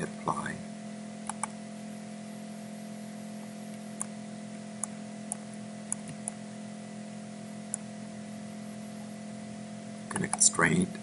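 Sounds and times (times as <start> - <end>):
steady low hum: 0.0 - 11.0
computer mouse clicking: 1.2 - 1.6, 4.8 - 6.4, 7.7 - 7.9, 10.1 - 10.5.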